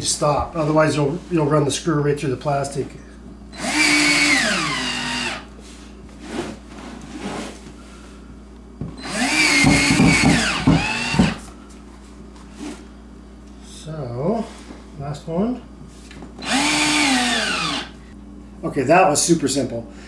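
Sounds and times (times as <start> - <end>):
cordless drill driving screws: 3.6 - 5.5, 9.0 - 11.4, 16.4 - 18.0.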